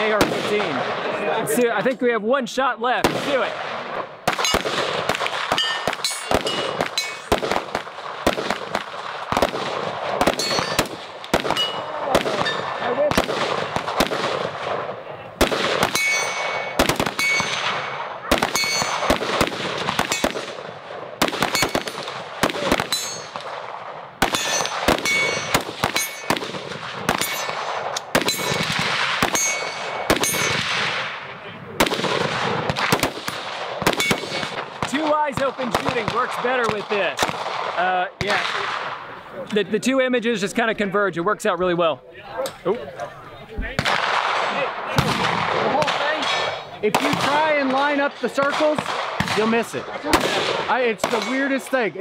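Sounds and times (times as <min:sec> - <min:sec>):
rifle shots: 0:00.0 - 0:01.1, 0:03.0 - 0:39.1, 0:43.8 - 0:51.9
steel targets ringing: 0:05.5 - 0:07.3, 0:10.3 - 0:10.9, 0:11.5 - 0:12.7, 0:15.9 - 0:17.7, 0:18.5 - 0:19.1, 0:22.9 - 0:23.4, 0:24.4 - 0:26.4, 0:27.2 - 0:28.7, 0:29.3 - 0:30.6.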